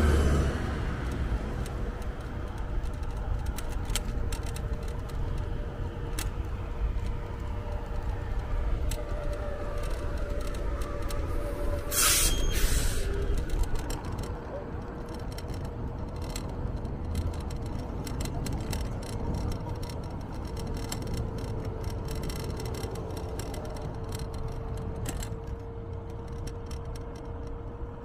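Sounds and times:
small clicks: 1.0s - 28.0s
short loud hisses: 11.9s - 13.1s.

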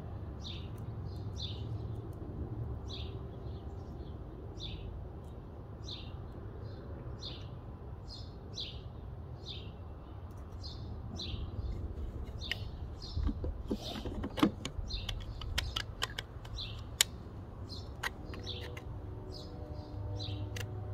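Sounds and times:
bird chirping: 0.4s - 2.1s, 2.8s - 20.8s.

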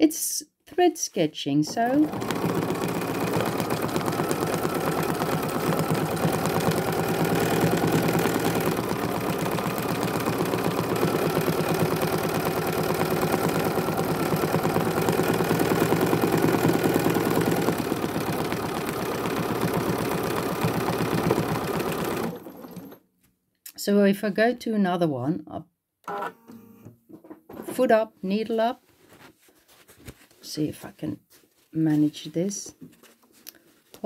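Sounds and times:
sewing machine stitching: 1.7s - 23.0s.

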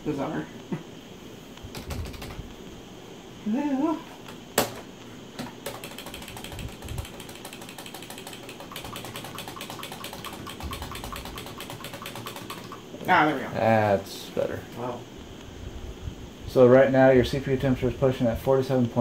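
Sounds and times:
sharp keyboard click: 1.7s - 2.5s, 5.4s - 12.8s
keyboard keys tapped rapidly: 1.7s - 2.6s, 5.4s - 12.9s.

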